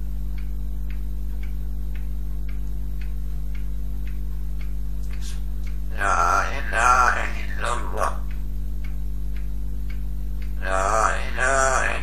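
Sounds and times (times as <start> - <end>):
steady low hum: 0.0 - 12.0
faint ticks: 7.6 - 11.8.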